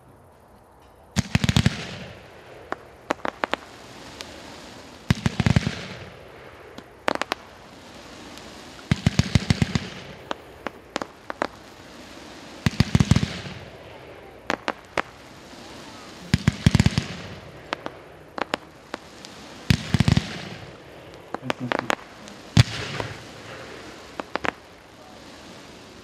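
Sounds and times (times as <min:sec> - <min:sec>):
firework shells popping: 0:01.2 - 0:04.4, 0:12.6 - 0:24.9
firework launch thumps and bangs: 0:14.5 - 0:24.6.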